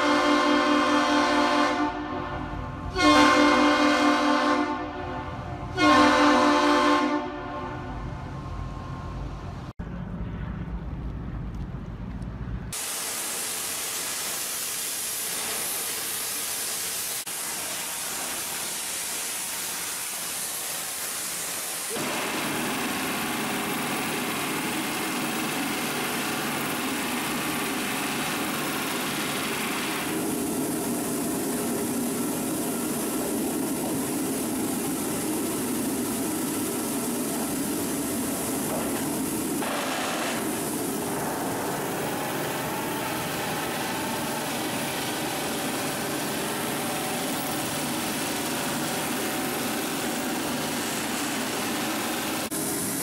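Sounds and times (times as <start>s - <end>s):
industrial machinery running: 12.7s - 53.0s.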